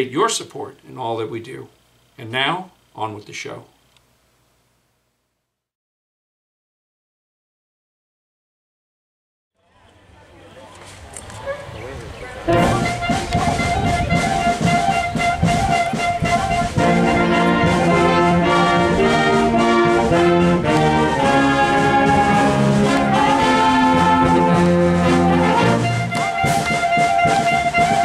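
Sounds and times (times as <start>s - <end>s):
concert band playing held chords: 10.4s - 28.0s.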